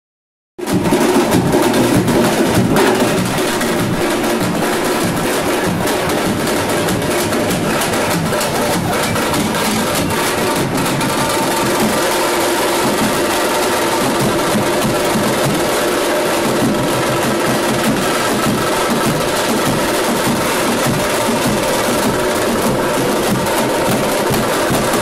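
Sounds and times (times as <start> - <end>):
fast drum rhythm: 0.6 - 25.0.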